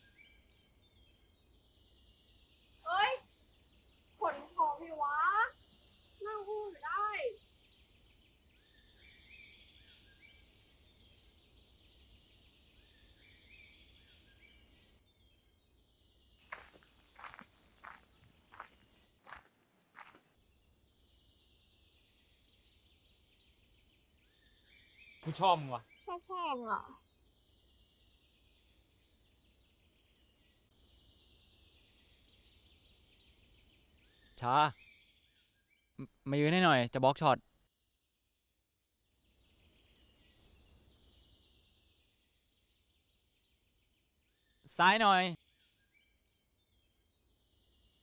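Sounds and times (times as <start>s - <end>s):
birds chirping: 0.0s - 20.3s, 24.3s - 35.2s, 36.0s - 37.5s, 44.5s - 45.4s
footsteps on dirt: 16.4s - 20.3s.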